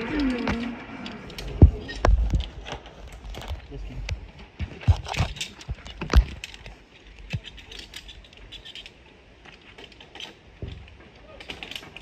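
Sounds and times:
gear clicks and knocks: 0:00.0 - 0:12.0
light metallic clinks: 0:05.0 - 0:12.0.

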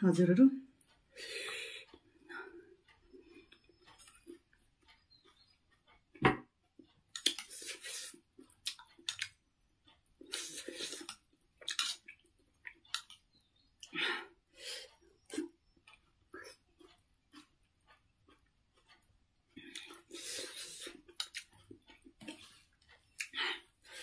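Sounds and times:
chewing: 0:00.8 - 0:06.1, 0:06.8 - 0:14.0, 0:14.9 - 0:24.0
slurping: 0:07.2 - 0:09.4, 0:10.2 - 0:13.2, 0:19.6 - 0:21.6.

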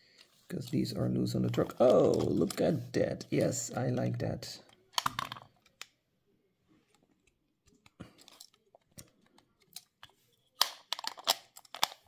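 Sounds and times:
plastic toy parts clicking: 0:04.7 - 0:06.0, 0:07.8 - 0:12.0.

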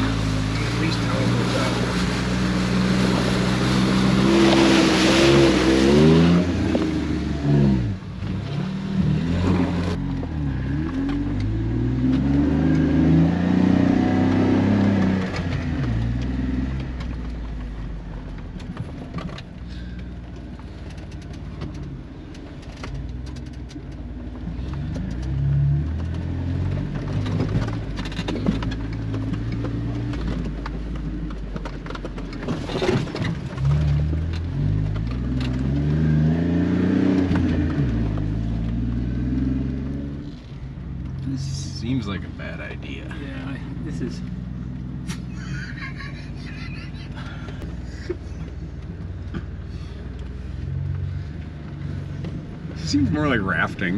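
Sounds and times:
water splashing: 0:00.0 - 0:07.3
engine revving: 0:00.0 - 0:17.0, 0:32.8 - 0:40.5.

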